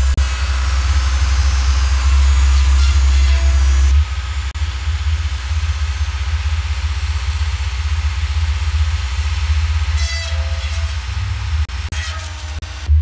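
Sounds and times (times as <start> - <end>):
tractor engine droning: 0.0 - 13.0.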